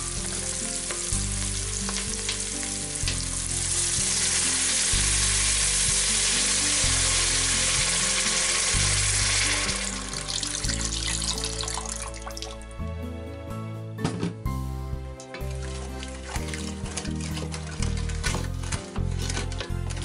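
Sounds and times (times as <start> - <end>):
water sizzling in hot pan: 0.0 - 12.5, 15.3 - 18.8
background music: 0.0 - 20.0
water pouring: 0.4 - 12.6, 15.2 - 20.0.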